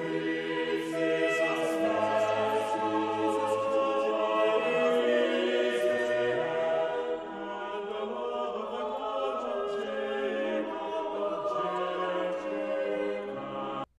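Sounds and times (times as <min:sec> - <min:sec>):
choir singing held notes: 0:00.0 - 0:13.9.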